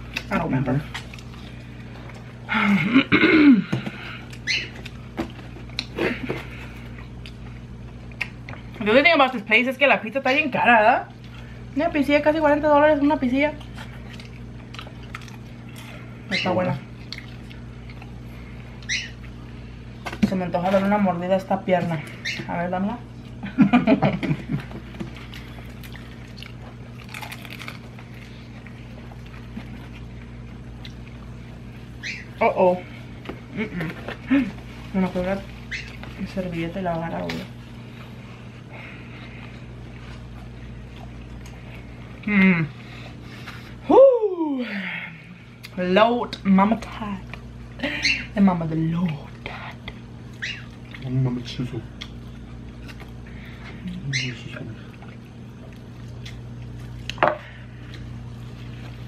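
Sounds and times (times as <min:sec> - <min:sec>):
low steady hum: 0:00.0 - 0:59.0
biting and chewing chicken: 0:03.6 - 0:08.8, 0:13.6 - 0:20.2, 0:24.2 - 0:34.7, 0:51.9 - 0:59.0
eating smacks and clicks: 0:08.1 - 0:08.6
crisp crunch: 0:24.9 - 0:30.1.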